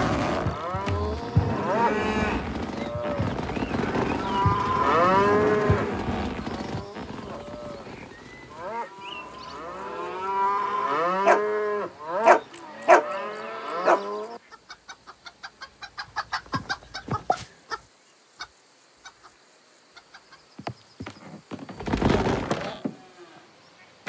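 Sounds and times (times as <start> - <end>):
cows mooing: 0.0 - 14.4
chicken clucking: 13.9 - 19.4.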